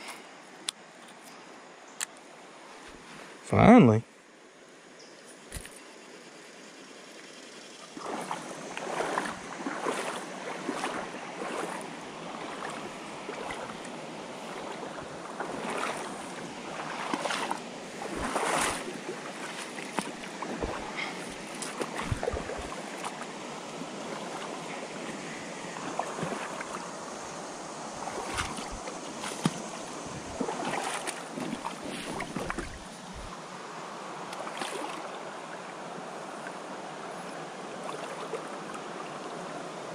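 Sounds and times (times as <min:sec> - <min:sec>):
water splashing from wading: 0:07.8 - 0:33.5, 0:34.2 - 0:35.8, 0:37.7 - 0:39.4
river current rushing: 0:07.9 - 0:39.9.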